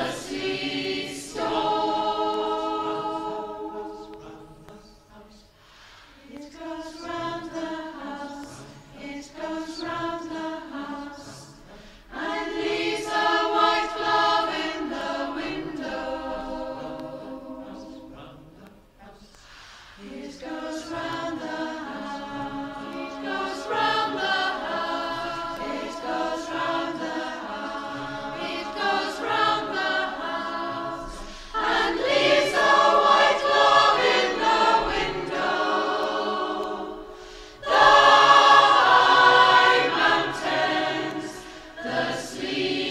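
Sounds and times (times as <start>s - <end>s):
choir singing: 0.0s - 42.9s.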